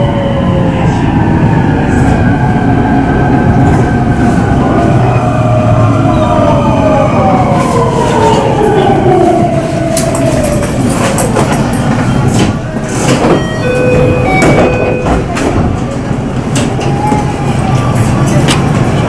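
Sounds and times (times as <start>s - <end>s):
electric train rumble: 0.0s - 19.0s.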